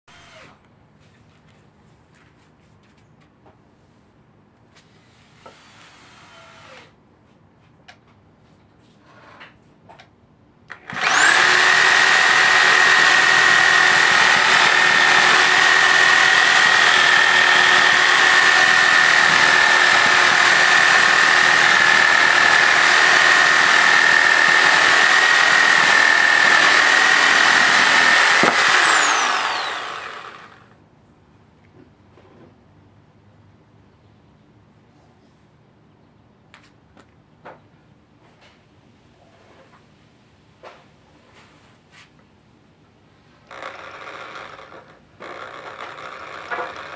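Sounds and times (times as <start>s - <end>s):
reciprocating saw cutting log: 10.7s - 30.7s, 43.5s - 46.9s.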